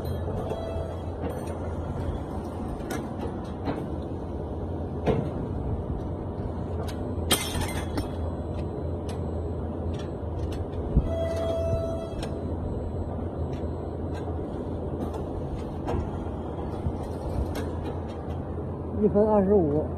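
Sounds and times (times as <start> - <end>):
machine running with low hum: 0.0 - 19.9.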